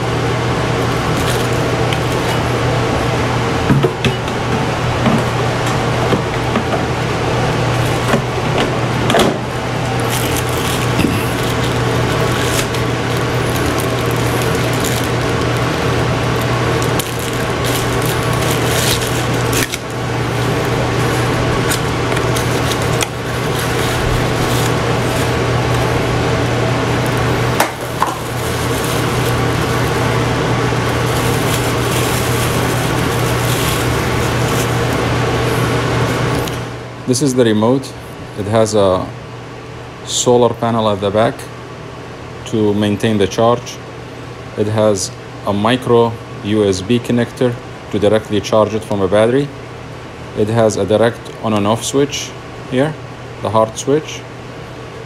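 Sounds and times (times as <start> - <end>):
steady low hum: 0.0 - 55.0
plastic bag crinkling: 0.9 - 2.5, 9.8 - 36.5.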